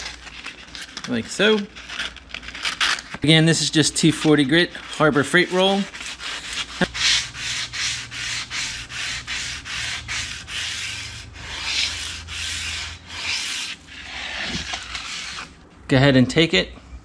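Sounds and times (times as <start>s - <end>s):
sandpaper rasping on metal: 3.6s - 15.6s.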